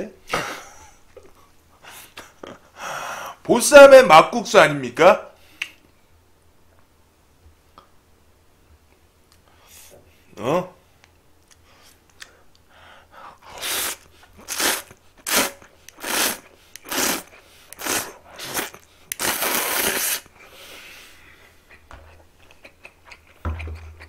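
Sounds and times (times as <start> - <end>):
person slurping noodles: 13.5 - 20.7
person chewing: 13.6 - 20.4, 21.6 - 24.0.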